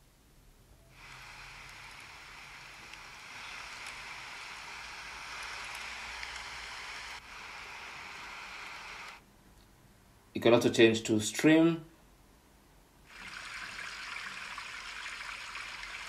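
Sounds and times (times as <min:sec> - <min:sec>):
rain-like hiss noise: 0:00.9 - 0:09.3, 0:13.0 - 0:16.0.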